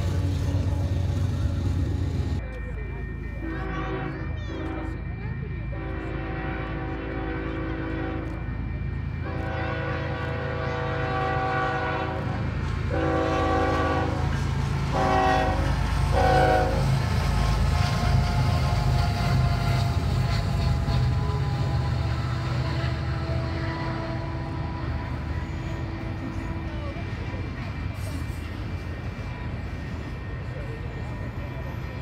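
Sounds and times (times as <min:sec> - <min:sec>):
locomotive engine rumble: 0:00.0 - 0:32.0
train cars rolling over rails: 0:00.0 - 0:32.0
locomotive air horn blasts: 0:03.4 - 0:05.0, 0:05.8 - 0:08.4, 0:09.2 - 0:26.9.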